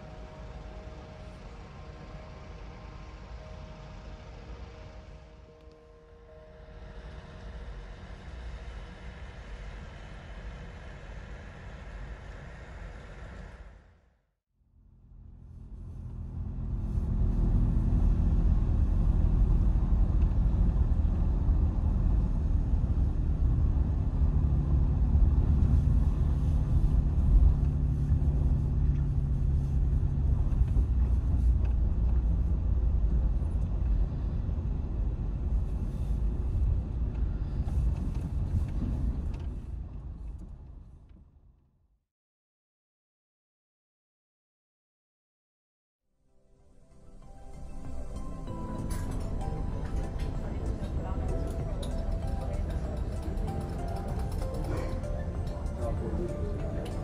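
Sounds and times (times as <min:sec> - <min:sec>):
motor vehicle rumbling: 0:14.8 - 0:41.3, 0:47.2 - 0:57.0.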